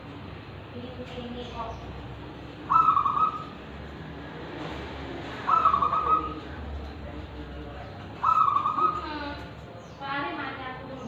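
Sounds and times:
dove cooing: 0:02.7 - 0:03.6, 0:05.4 - 0:06.6, 0:08.2 - 0:09.5.

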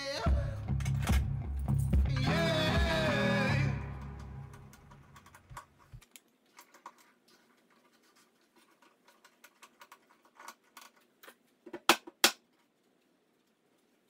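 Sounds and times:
clamps clicking and scraping: 0:04.5 - 0:11.5.

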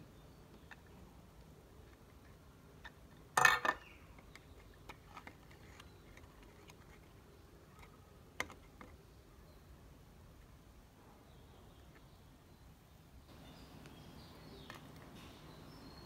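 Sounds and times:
metal cans and lids clinking: 0:03.4 - 0:03.9.

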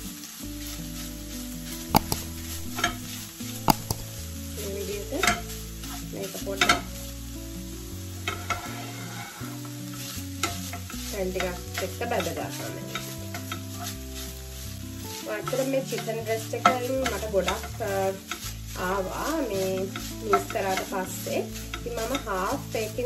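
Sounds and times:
meat sizzling in a frying pan: 0:00.0 - 0:23.0
soft background music: 0:00.0 - 0:23.0
spatula tapping on a pan: 0:02.0 - 0:04.4.

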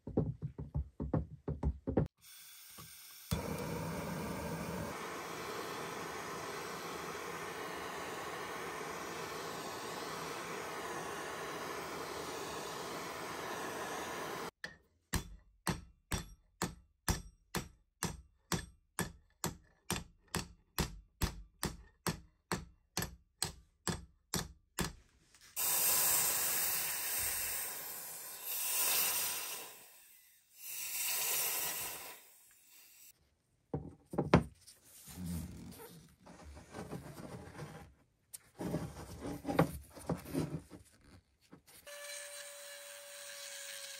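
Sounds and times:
gas torch hissing: 0:03.3 - 0:14.6, 0:25.6 - 0:33.1.

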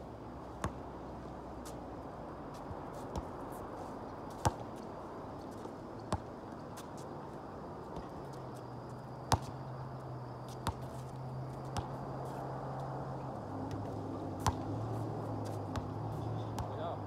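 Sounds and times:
outdoor background noise: 0:00.0 - 0:17.0
basketball impacts: 0:09.3 - 0:09.6, 0:13.7 - 0:14.7.

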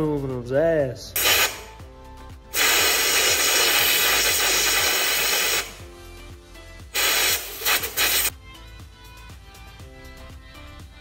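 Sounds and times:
compressed air blow gun hissing: 0:01.2 - 0:01.8, 0:02.5 - 0:05.8, 0:06.9 - 0:08.3.

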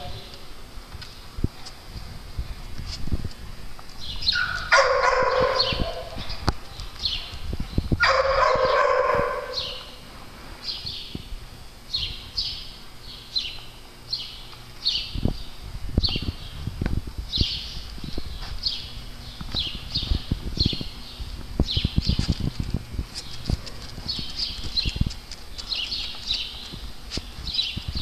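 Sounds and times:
dog crying: 0:04.4 - 0:06.2, 0:08.0 - 0:09.8.

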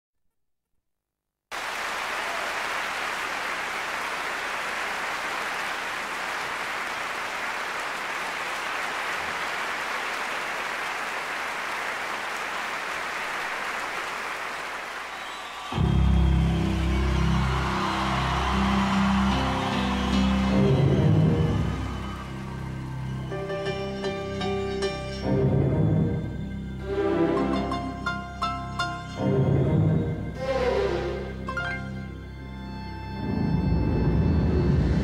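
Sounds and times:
audience applauding: 0:01.5 - 0:24.4, 0:30.5 - 0:32.0
band music: 0:15.8 - 0:35.0.

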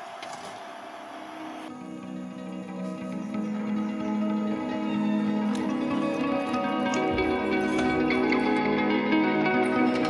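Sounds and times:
plucked-string music over held tones: 0:01.8 - 0:10.0.

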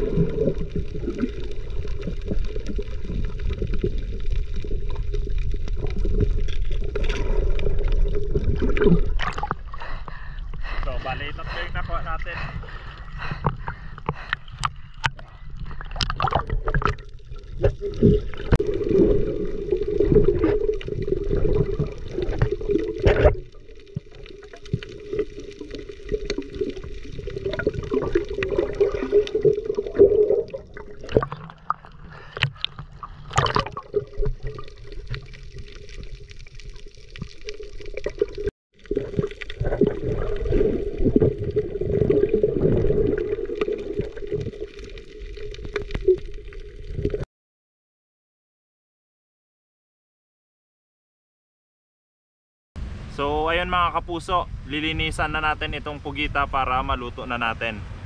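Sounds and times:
water gurgling and sloshing: 0:00.0 - 0:47.2.

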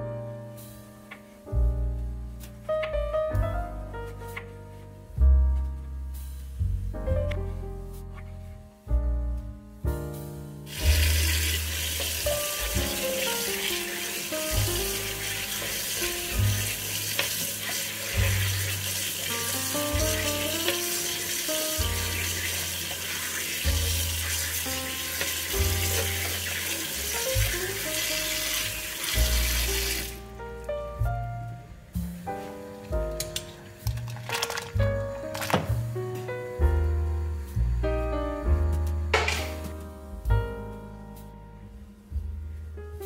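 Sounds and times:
background music: 0:00.0 - 0:43.0
tap water running into strainer: 0:10.7 - 0:30.2, 0:33.9 - 0:34.8.

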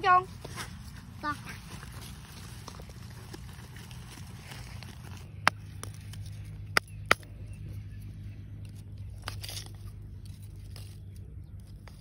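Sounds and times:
low steady hum: 0:00.0 - 0:12.0
charcoal crunching scrape: 0:00.5 - 0:06.5, 0:09.1 - 0:12.0.

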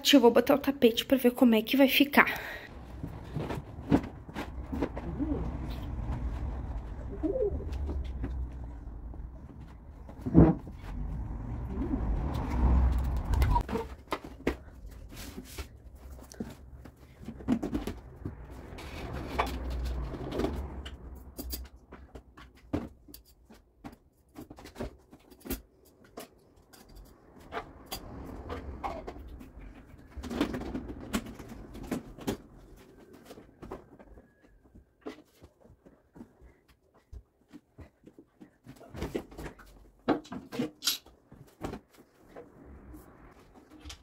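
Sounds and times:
boxes and plastic knocking: 0:02.7 - 0:11.5, 0:12.2 - 0:26.4, 0:27.2 - 0:36.4.

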